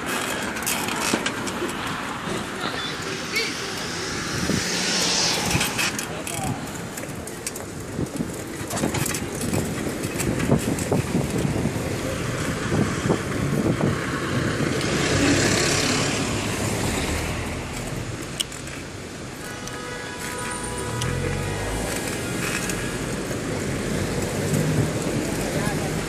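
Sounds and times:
bicycle knocks and rattles: 0:00.0 - 0:02.4, 0:05.6 - 0:14.0
street traffic: 0:00.0 - 0:26.0.

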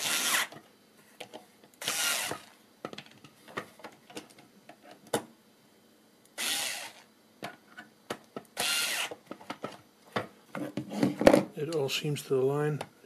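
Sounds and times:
cordless screwdriver driving screws: 0:01.8 - 0:02.4, 0:06.4 - 0:07.0, 0:08.6 - 0:09.2.

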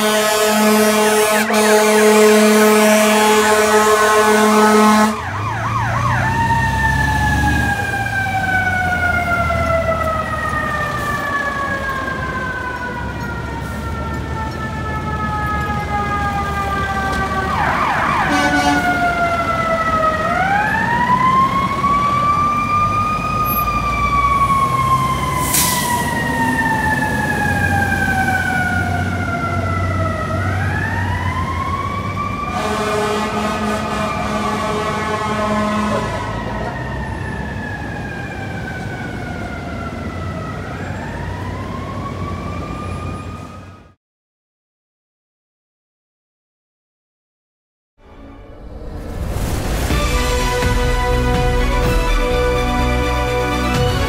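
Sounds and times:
horn blaring: 0:00.0 - 0:06.1, 0:13.5 - 0:20.5, 0:32.5 - 0:36.6, 0:48.0 - 0:54.0
fire truck siren wailing: 0:00.0 - 0:44.0, 0:48.0 - 0:54.0
traffic rumble: 0:00.1 - 0:43.8.

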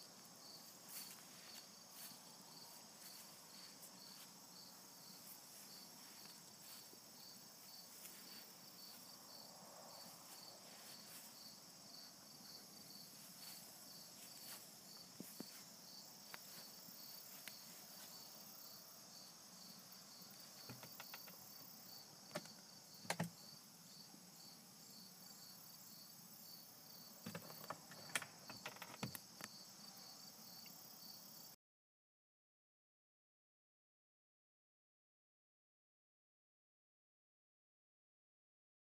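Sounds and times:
crickets chirping faintly: 0:00.0 - 0:31.6
sharp clicks and knocks: 0:20.6 - 0:21.4, 0:22.3 - 0:23.4, 0:27.2 - 0:29.5.

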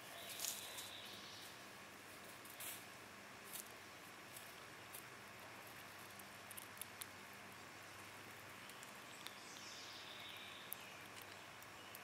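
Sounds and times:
low steady hiss: 0:00.0 - 0:12.0
squirrel nibbling seed shells: 0:00.2 - 0:01.0, 0:03.4 - 0:12.0.

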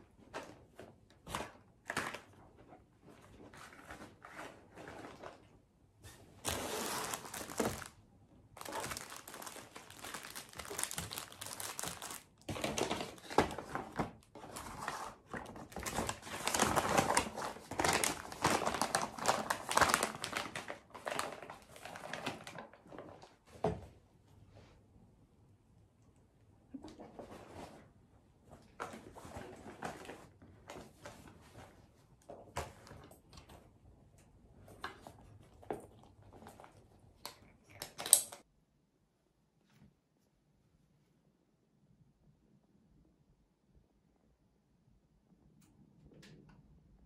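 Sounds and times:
contents crinkling: 0:06.3 - 0:23.4
canvas bag rustling: 0:06.4 - 0:07.9, 0:08.6 - 0:12.2.

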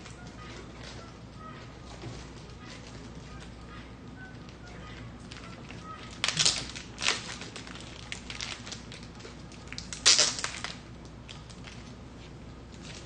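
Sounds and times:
plastic packaging crinkling: 0:05.2 - 0:12.0.

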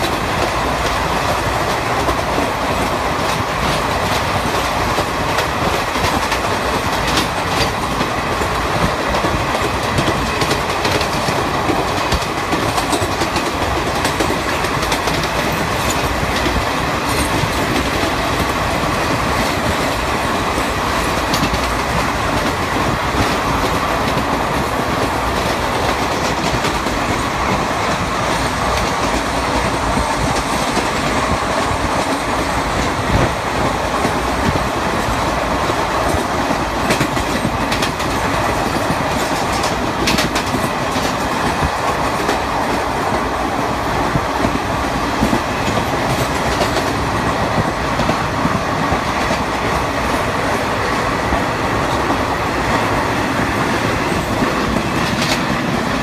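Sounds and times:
train wheels rumbling on rails: 0:00.0 - 0:56.0
wheels clicking over rail joints: 0:00.0 - 0:56.0.

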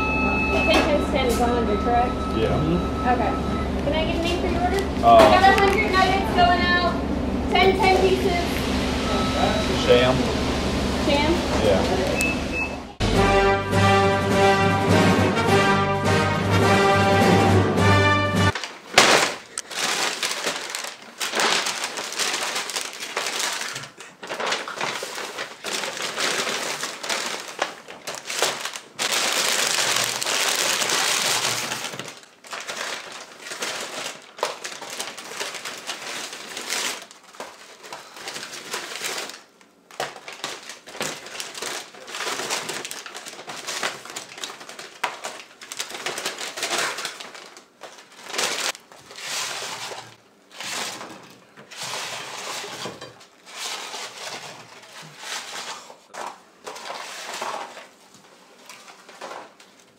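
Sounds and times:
paper bags rustling: 0:04.2 - 0:06.9, 0:18.4 - 0:59.9.

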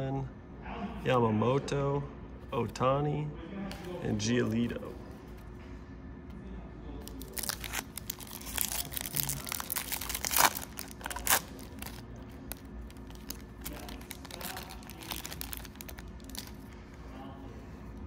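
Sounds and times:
foil wrapper crinkling and tearing: 0:07.0 - 0:16.7.

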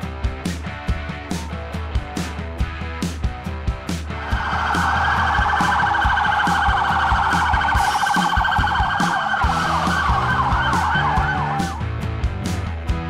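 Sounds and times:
background music with steady beat: 0:00.0 - 0:13.0
police siren yelp: 0:04.2 - 0:11.9
siren wails: 0:04.2 - 0:11.9.

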